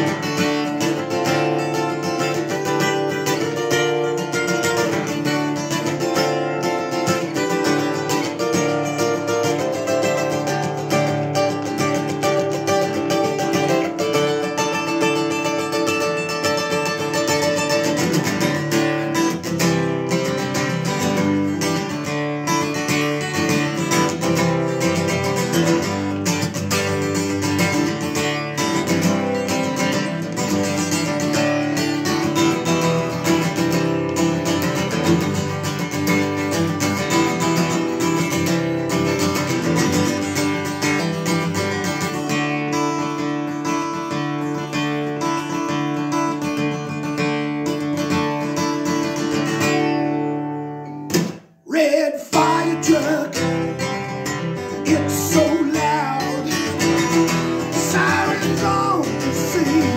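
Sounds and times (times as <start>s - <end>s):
acoustic guitar strumming: 0.0s - 59.9s.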